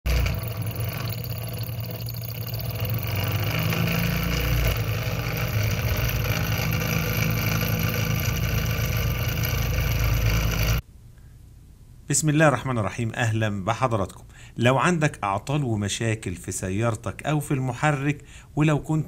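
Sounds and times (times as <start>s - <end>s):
stirling engine running: 0.0s - 10.8s.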